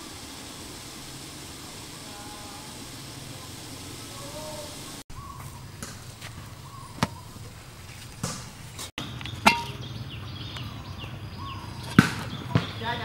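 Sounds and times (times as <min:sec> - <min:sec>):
metal pot and lid clinking: 0:09.4 - 0:09.8.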